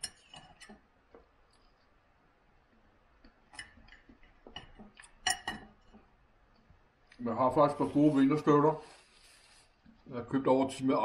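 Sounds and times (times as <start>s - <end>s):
knife and fork on a plate: 0.0s - 0.8s.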